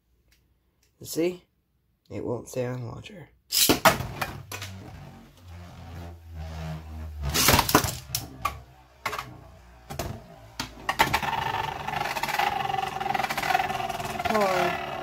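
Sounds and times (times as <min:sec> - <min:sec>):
spinning top whirring rattle: 0:07.3 - 0:15.0.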